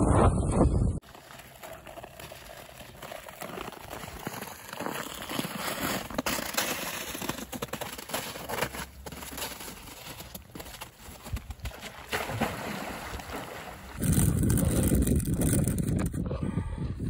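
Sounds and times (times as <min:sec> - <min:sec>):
skate blades scraping on ice: 0:01.0 - 0:12.2
ice crackling and clicking: 0:01.1 - 0:12.0, 0:14.0 - 0:16.1.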